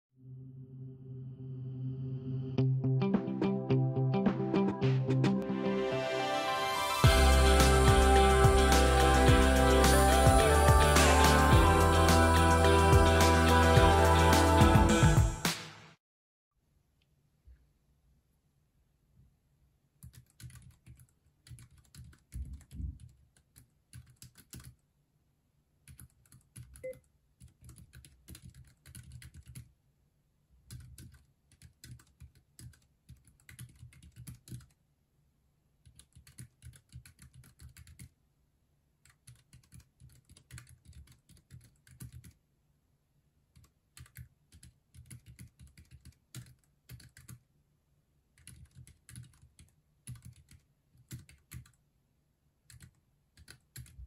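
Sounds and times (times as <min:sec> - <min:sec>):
mechanical keyboard typing: 0:20.0 - 0:24.8, 0:25.9 - 0:29.7, 0:30.7 - 0:34.8, 0:35.9 - 0:38.1, 0:39.0 - 0:42.4, 0:43.6 - 0:47.4, 0:48.4 - 0:51.8, 0:52.7 - 0:54.0.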